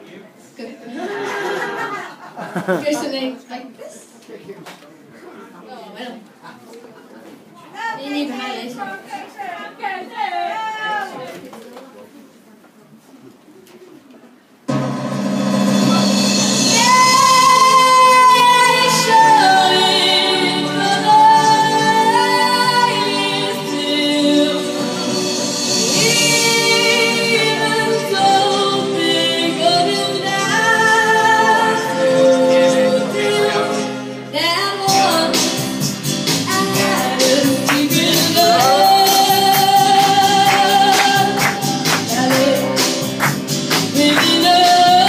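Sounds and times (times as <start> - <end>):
sharp percussion beat: 14.7 - 19.0, 34.9 - 45.0
woman singing with instruments: 16.6 - 25.2, 25.8 - 35.8, 36.4 - 43.1, 43.8 - 45.0.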